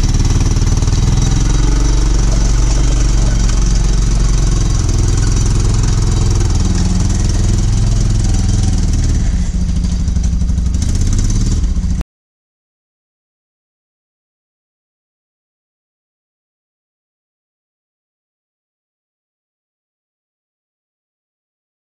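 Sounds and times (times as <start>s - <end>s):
utility vehicle engine under load: 0.0s - 12.0s.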